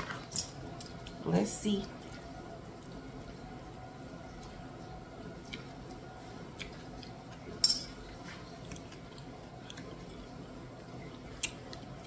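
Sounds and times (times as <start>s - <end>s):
person chewing: 5.4s - 12.0s.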